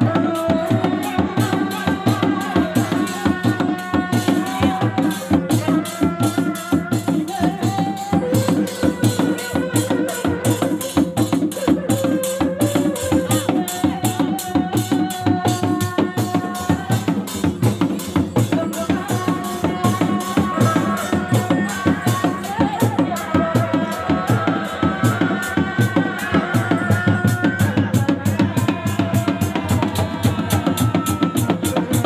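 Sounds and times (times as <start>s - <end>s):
frame drums beaten with sticks: 0.0s - 32.0s.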